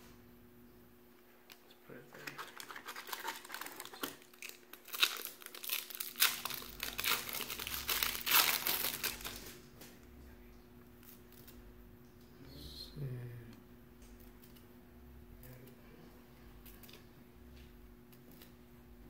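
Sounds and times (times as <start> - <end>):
foil wrapper tearing and crinkling: 2.2 - 9.6.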